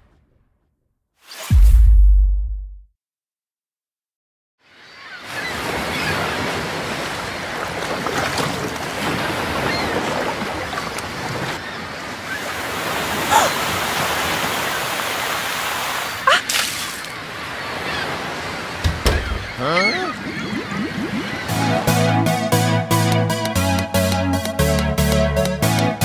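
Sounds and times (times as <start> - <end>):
wind: 4.6 - 21.7
ocean waves and surf: 4.6 - 23.6.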